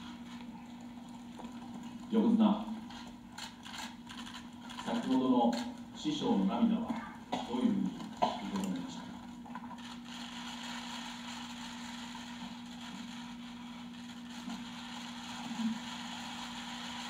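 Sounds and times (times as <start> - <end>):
low hum with faint hiss: 0.0 - 17.0.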